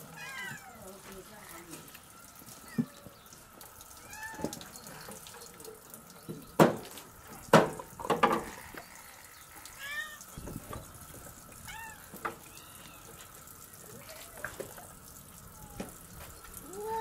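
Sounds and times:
tap running into metal sink: 4.3s - 8.6s, 10.4s - 12.5s
loud sharp knocks: 7.5s - 8.4s.

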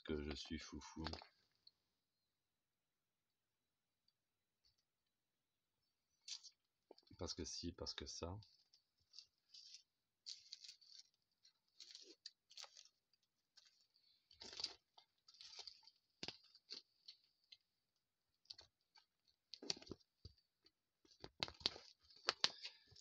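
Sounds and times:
crackles and rustles: 6.1s - 23.0s.

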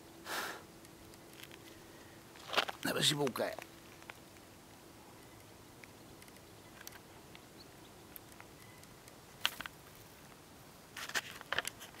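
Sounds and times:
faint background hiss: 0.0s - 12.0s
camera handling clicks and rustles: 8.3s - 9.8s, 11.0s - 12.0s.

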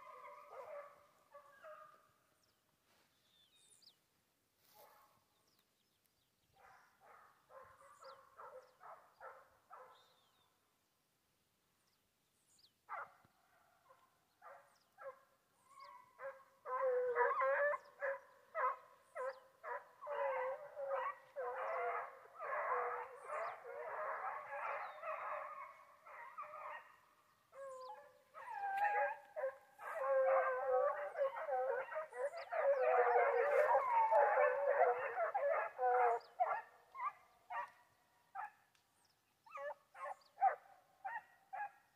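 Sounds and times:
hounds baying: 0.0s - 2.0s, 13.9s - 38.6s, 39.5s - 41.8s.

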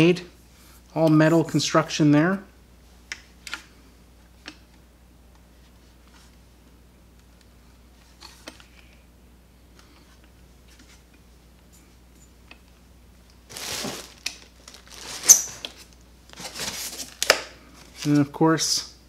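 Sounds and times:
rustling and scraping: 9.8s - 12.4s, 13.5s - 18.3s.

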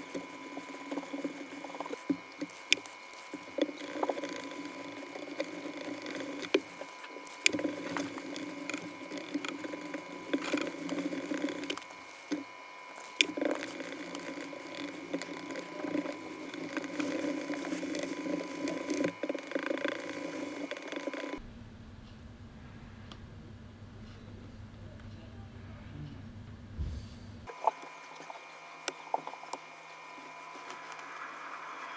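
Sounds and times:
spatula scraping plastic cup: 0.0s - 21.4s.

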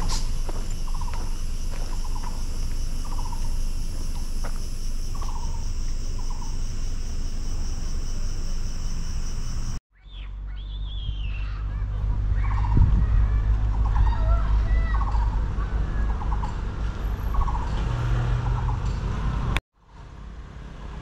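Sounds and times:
high-pitched insect chorus: 0.0s - 9.8s
short rattling insect call: 0.0s - 9.8s
whistled bird calls: 0.0s - 11.7s
low rumble: 0.0s - 19.6s.

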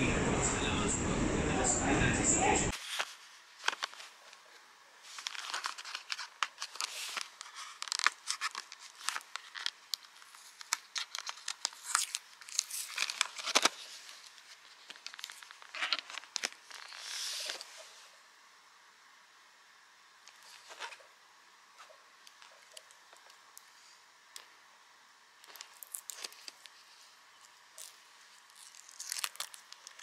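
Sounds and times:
wrapper crinkling and tearing: 2.7s - 4.3s, 5.1s - 17.6s, 25.4s - 26.8s, 27.6s - 30.0s
small crackles and clicks: 5.1s - 17.7s, 21.8s - 23.7s, 25.4s - 30.0s.

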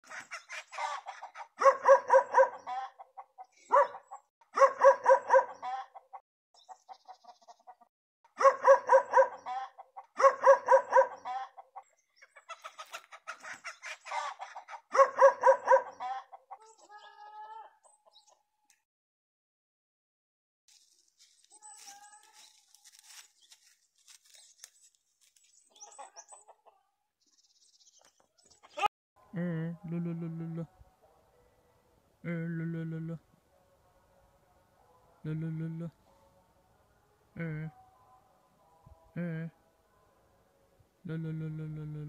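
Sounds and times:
chickens clucking: 0.0s - 4.2s, 5.1s - 7.9s, 9.2s - 10.3s, 10.9s - 15.0s, 15.7s - 18.4s, 25.7s - 26.9s.

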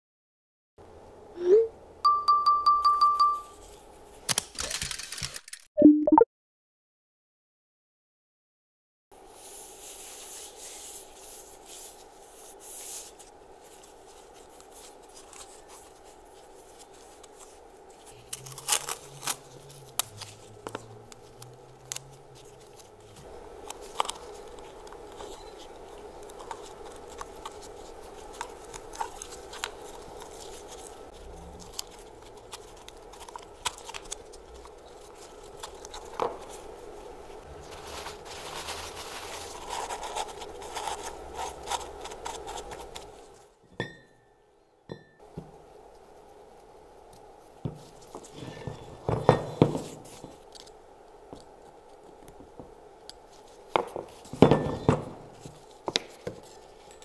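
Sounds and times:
paper towel crinkling: 9.2s - 43.5s
masking tape crackling and tearing: 14.5s - 36.8s, 37.4s - 43.5s.

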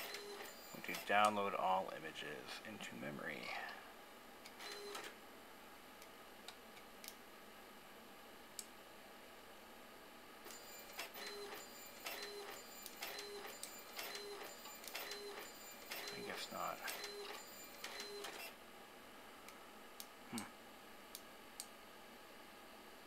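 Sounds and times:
print head whirring: 0.0s - 1.2s, 4.6s - 5.1s, 10.4s - 18.5s
faint printer clicks: 10.5s - 18.5s.

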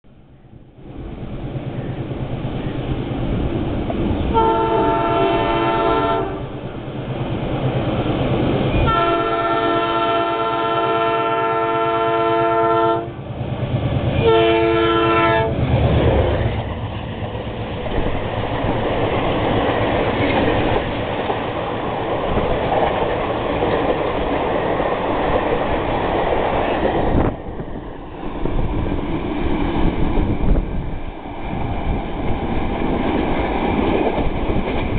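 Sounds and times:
train passing with loud rush: 0.1s - 34.9s
locomotive air horn: 4.3s - 6.5s, 8.8s - 13.2s, 14.2s - 15.5s.

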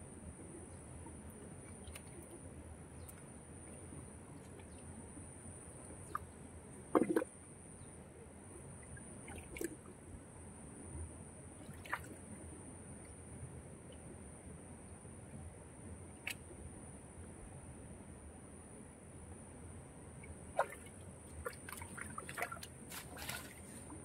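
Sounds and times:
splashes and squelches of mud: 1.5s - 4.8s, 6.9s - 7.3s, 9.3s - 9.8s, 11.6s - 12.3s, 20.6s - 24.0s.

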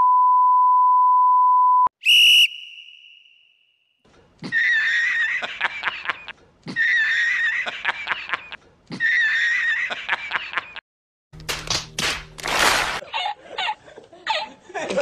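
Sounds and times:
comic snickering laugh: 4.4s - 10.8s, 13.0s - 15.0s.

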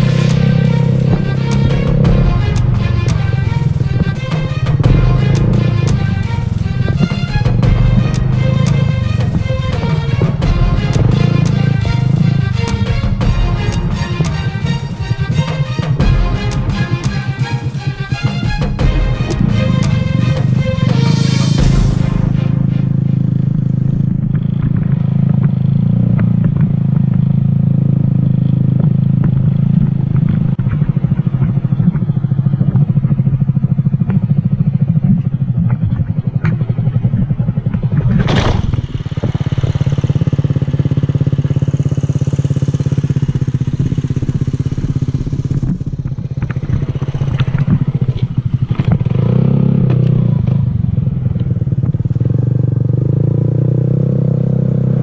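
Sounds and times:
loud rush of noise: 0.0s - 25.2s
motorcycle engine running: 0.0s - 55.0s.

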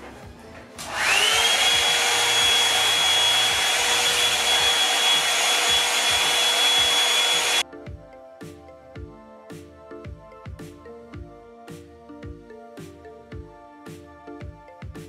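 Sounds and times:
hair dryer motor whine and air rush: 0.8s - 7.6s.

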